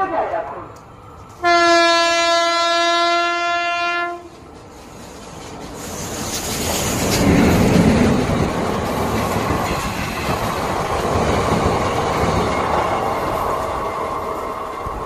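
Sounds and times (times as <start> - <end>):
train wheels clattering: 4.0 - 13.4.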